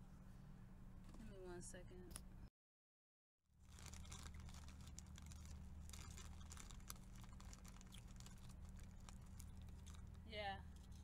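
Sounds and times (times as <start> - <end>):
small clicks and rustles: 3.6 - 11.0
steady low hum: 3.6 - 11.0.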